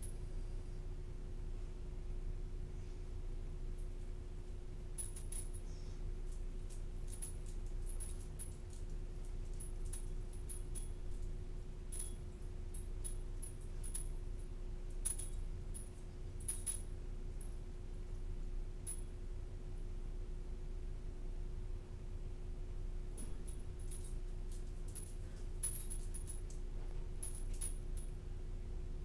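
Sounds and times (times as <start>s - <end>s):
steady low hum: 0.0s - 29.0s
metallic clinks and jingles: 3.7s - 19.2s, 23.2s - 28.2s.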